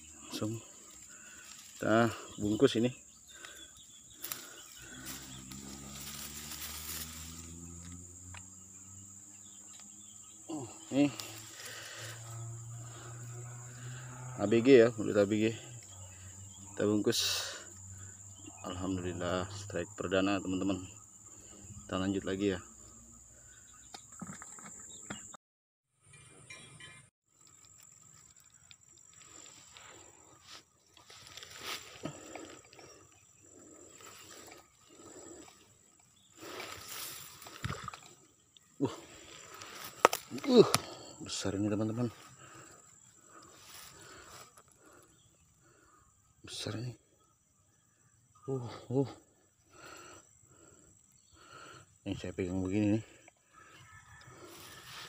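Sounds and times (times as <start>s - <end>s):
insects buzzing: 0.0s - 25.3s, 27.3s - 55.0s
hands rustling in dry grass: 4.2s - 7.8s, 29.0s - 32.5s, 36.3s - 37.9s
low hum: 4.2s - 16.8s.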